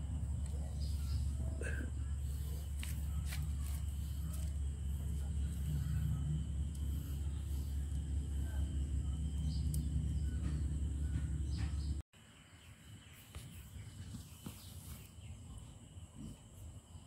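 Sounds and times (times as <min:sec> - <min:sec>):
low rumble: 0:00.0 - 0:12.0
high drone of insects: 0:00.0 - 0:17.0.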